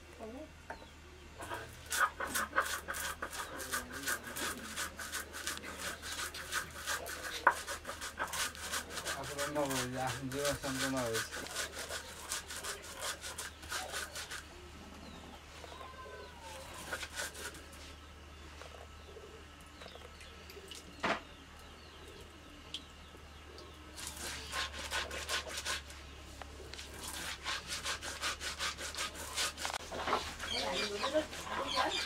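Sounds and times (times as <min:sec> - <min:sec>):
stone grinding on stone slab: 0:01.5 - 0:14.4
faint bird chirps: 0:13.8 - 0:16.9.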